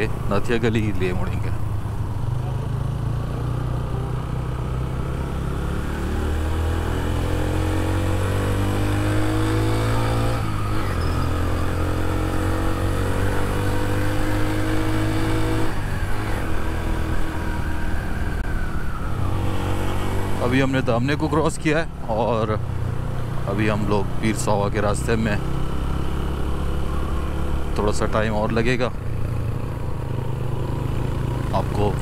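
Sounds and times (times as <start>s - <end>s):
motorcycle engine accelerating: 0.0s - 32.0s.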